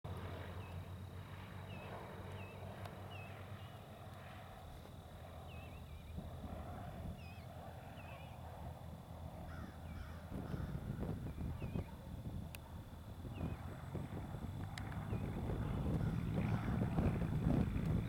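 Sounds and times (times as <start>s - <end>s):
distant airplane engine drone: 0.0s - 18.0s
small birds chirping: 1.6s - 3.9s, 5.4s - 6.3s, 7.1s - 8.4s, 9.4s - 12.6s, 13.2s - 13.8s.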